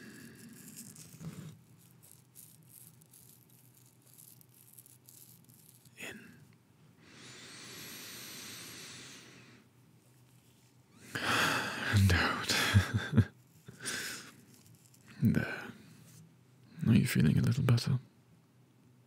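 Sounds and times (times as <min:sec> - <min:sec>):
man breathing slowly: 0:07.0 - 0:09.7, 0:11.0 - 0:12.7, 0:13.7 - 0:14.4.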